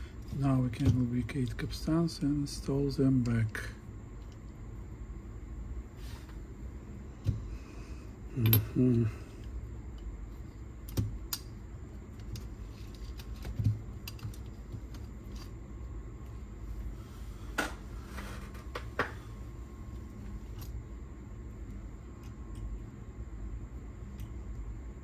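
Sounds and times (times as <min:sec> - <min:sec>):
low steady hum: 0:00.0 - 0:25.0
small clicks and taps of tools: 0:12.2 - 0:15.5.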